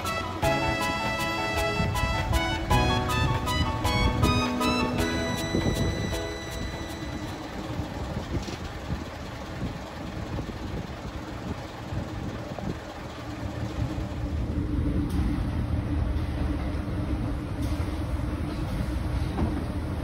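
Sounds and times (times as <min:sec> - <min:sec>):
train running with low rumble: 0:00.0 - 0:20.0.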